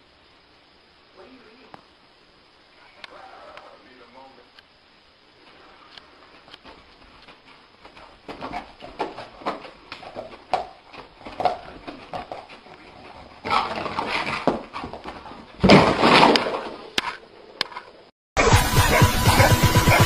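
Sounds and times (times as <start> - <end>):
dog thrashing awake: 11.2 - 17.2.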